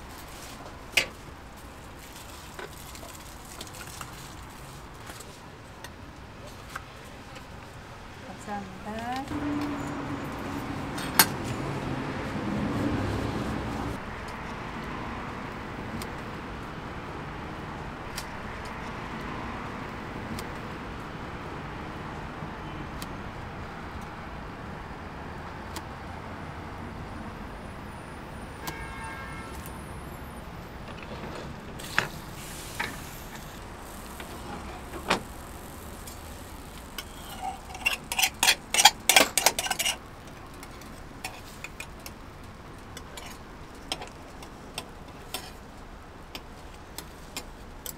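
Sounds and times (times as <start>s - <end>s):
vehicle rumbling past: 9.2s - 28.6s
steady background hum: 30.1s - 47.9s.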